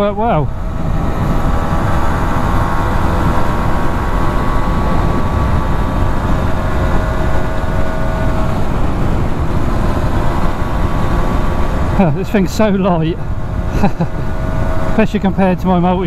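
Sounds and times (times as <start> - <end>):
wind on microphone: 0.0 - 12.2
motorcycle engine cruising: 0.0 - 16.0.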